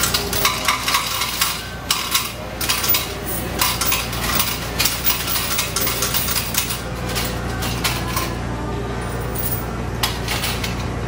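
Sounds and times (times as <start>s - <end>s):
coins clinking: 0.0s - 10.9s
low hum of machines: 0.0s - 11.0s.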